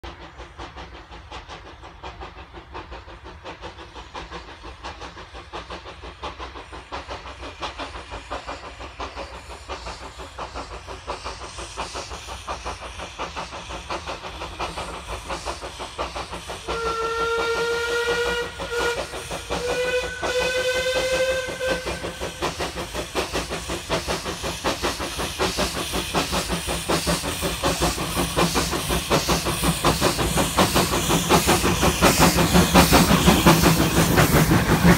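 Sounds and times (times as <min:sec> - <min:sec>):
steam locomotives chuffing: 0:00.0 - 0:34.9
steam whistle blasts: 0:16.6 - 0:22.5.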